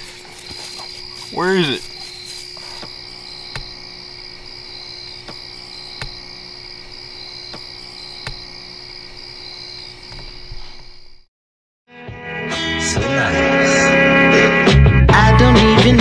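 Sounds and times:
insects trilling: 0.0 - 11.3.

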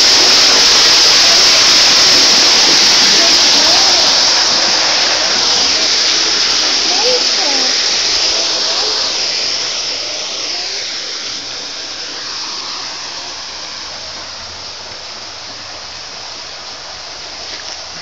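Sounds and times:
small waterfall splashing: 0.0 - 18.0.

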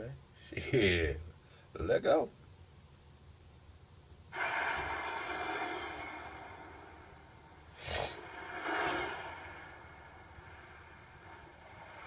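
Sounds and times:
cinematic swell: 4.3 - 12.0.

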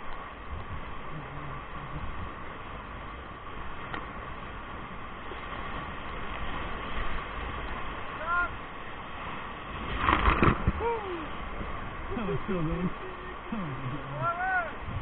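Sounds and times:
whitewater rushing and churning: 0.0 - 15.0.

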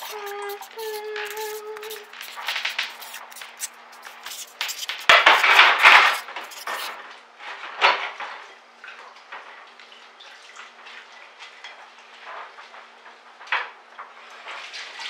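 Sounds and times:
marker scratching on cardboard: 0.0 - 7.0.

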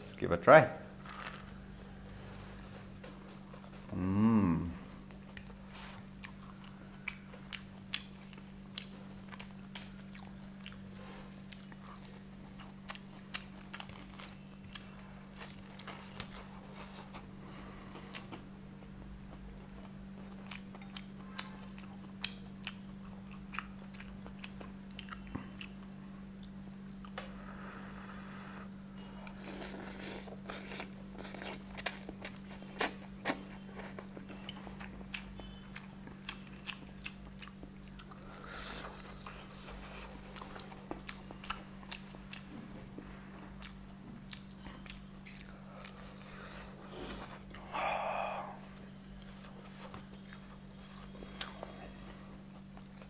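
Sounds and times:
crunching fried chicken: 0.9 - 2.5, 5.4 - 17.0.

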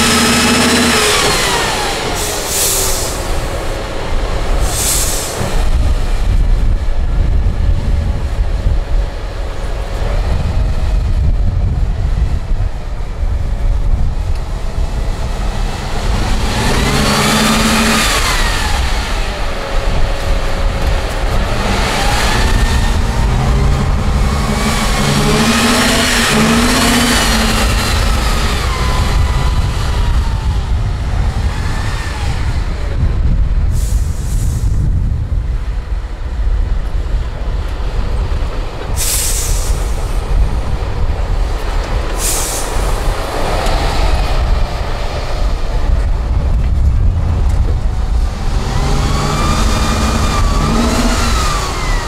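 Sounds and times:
diesel truck engine under load: 0.0 - 52.0
sharp air hisses: 2.2 - 3.5, 4.6 - 5.5, 33.7 - 34.8, 39.0 - 40.2, 42.2 - 43.1.

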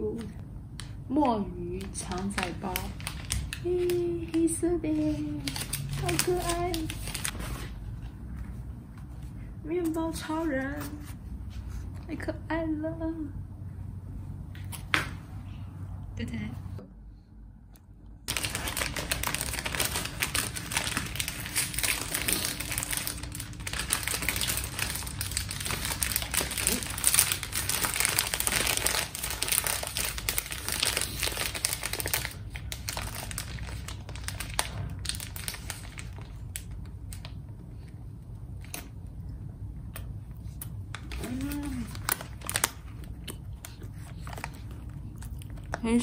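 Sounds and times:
plastic and paper wrapping crinkling: 1.6 - 11.2, 18.3 - 37.9, 40.5 - 46.0.

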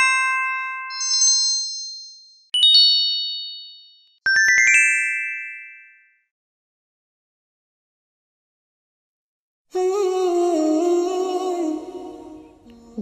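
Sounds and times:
bell-like chimes jingle: 0.0 - 6.3.

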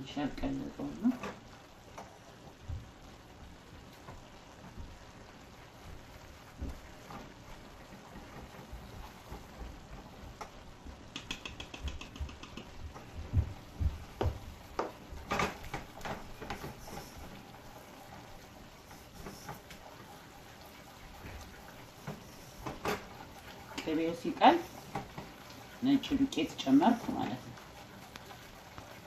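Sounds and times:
whisk scraping a saucepan: 14.8 - 29.0.

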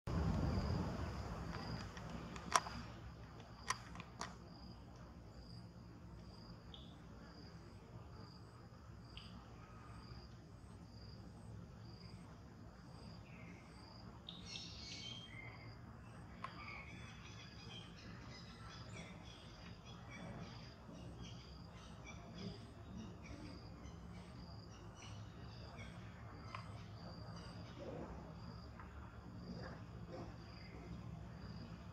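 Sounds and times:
insects chirping: 0.1 - 31.9
low hum: 0.1 - 31.9
sharp clicks: 1.5 - 4.4.

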